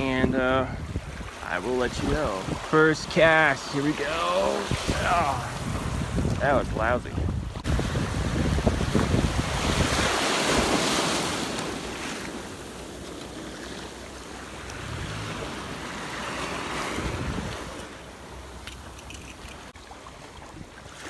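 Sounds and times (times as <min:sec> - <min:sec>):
wind buffeting microphone: 0:00.0 - 0:12.7, 0:14.0 - 0:21.0
small waves washing on shore: 0:00.0 - 0:21.0.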